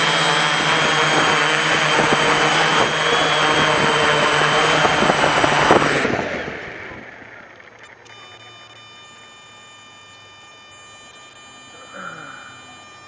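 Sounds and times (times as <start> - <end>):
drone landing bump: 0.0 - 7.2
drone propellers whirring: 0.0 - 13.0.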